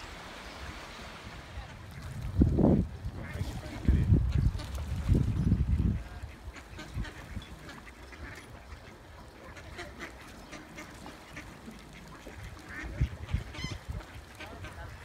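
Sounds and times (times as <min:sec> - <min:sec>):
ducks quacking: 0:03.2 - 0:05.0, 0:05.6 - 0:15.0.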